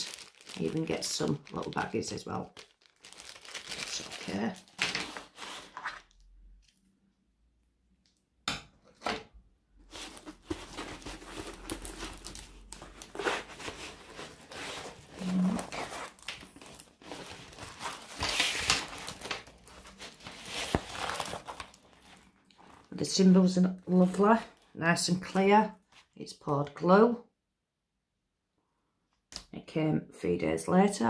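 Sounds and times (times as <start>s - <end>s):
plastic packaging crinkling: 0.0s - 6.8s, 9.8s - 23.0s.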